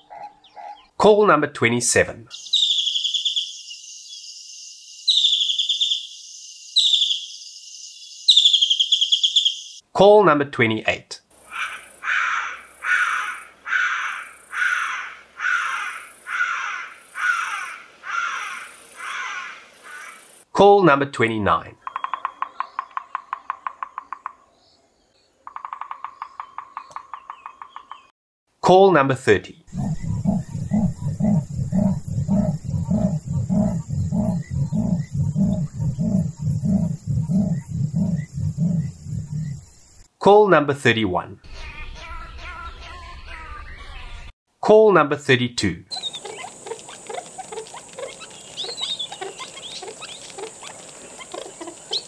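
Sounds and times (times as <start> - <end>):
harsh animal call: 29.7 - 40.0.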